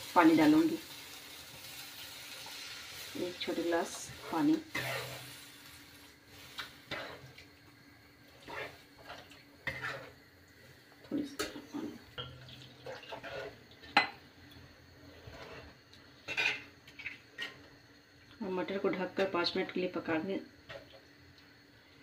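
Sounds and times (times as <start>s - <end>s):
spatula scraping a pan: 3.0s - 7.4s, 8.3s - 10.2s, 12.8s - 14.2s, 14.9s - 17.6s.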